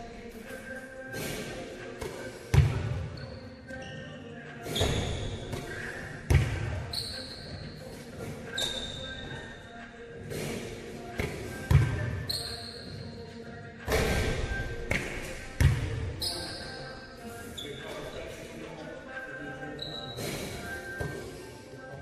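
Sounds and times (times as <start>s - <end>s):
shoe squeaks: 2.9s - 10.8s, 11.4s - 13.6s, 16.0s - 18.4s, 19.7s - 21.6s.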